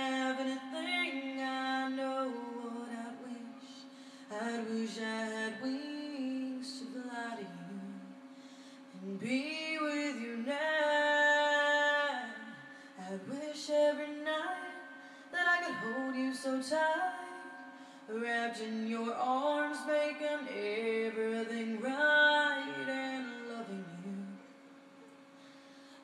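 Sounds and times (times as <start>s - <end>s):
woman singing slow ballad: 0.0s - 24.4s.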